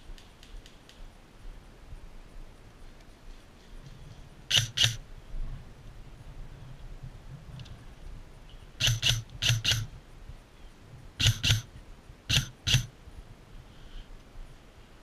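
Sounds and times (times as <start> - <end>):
airsoft gun shots: 4.5 - 5.0, 8.8 - 9.9, 11.2 - 11.7, 12.3 - 12.9.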